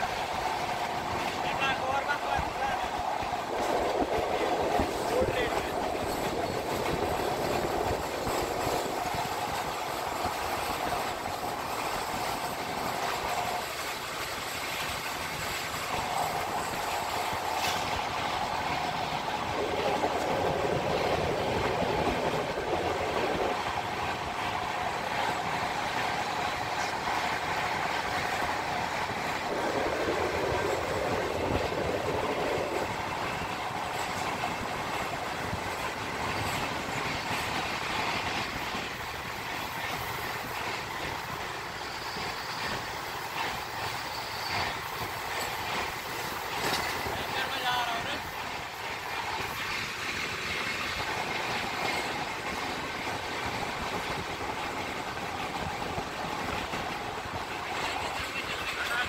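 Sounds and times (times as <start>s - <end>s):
carriages rattling: 0.0s - 59.0s
train wheels on rails: 0.0s - 59.0s.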